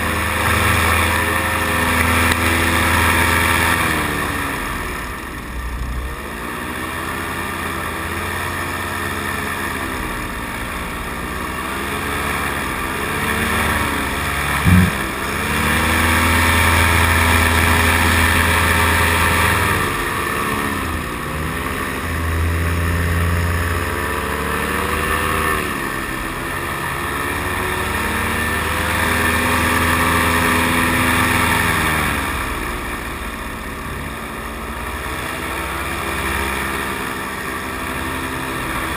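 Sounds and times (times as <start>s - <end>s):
paramotor engine and propeller: 0.0s - 38.9s
loud knock: 14.7s - 15.1s.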